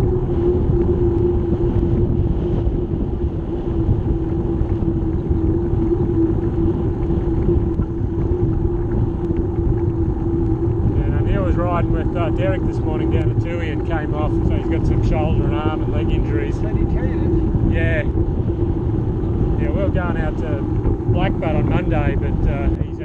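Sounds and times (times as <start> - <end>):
steady hum: 0.0 - 23.0
wind rumbling over microphone: 0.0 - 23.0.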